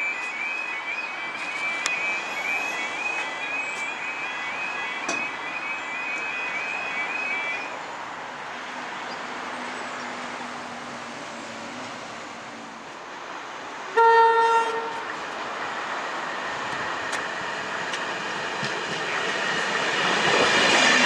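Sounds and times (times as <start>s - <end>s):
level crossing alarm: 0.0s - 7.8s.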